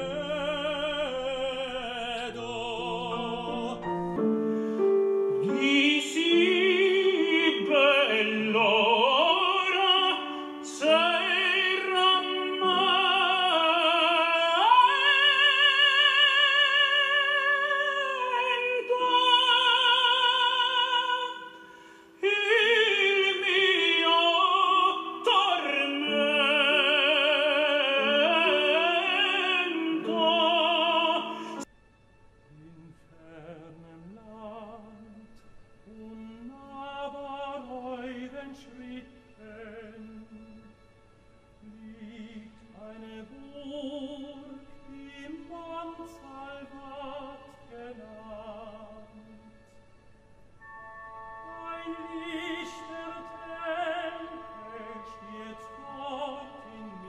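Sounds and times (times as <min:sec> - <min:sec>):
operatic tenor singing loudly: 0:00.0 - 0:04.2, 0:05.4 - 0:21.6, 0:22.2 - 0:31.6, 0:51.5 - 0:57.0
tenor singing softly: 0:00.0 - 0:31.7, 0:50.6 - 0:57.0.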